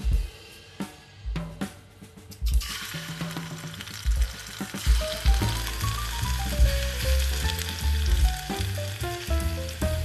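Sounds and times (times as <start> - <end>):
background music with bass line: 0.0 - 10.0
oil sizzling in a pan: 2.5 - 10.0.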